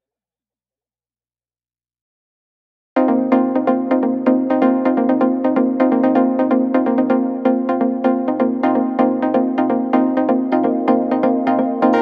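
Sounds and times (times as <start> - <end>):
electronic music with quick beat: 3.0 - 12.0.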